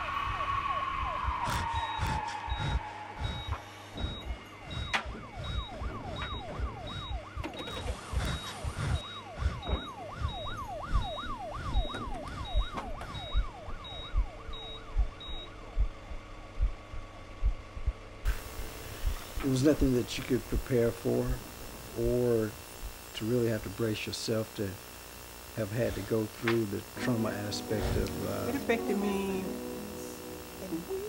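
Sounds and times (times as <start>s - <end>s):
siren yelping: 0.0s - 16.2s
steady high beeping: 0.1s - 15.9s, 18.3s - 24.1s, 25.6s - 31.0s.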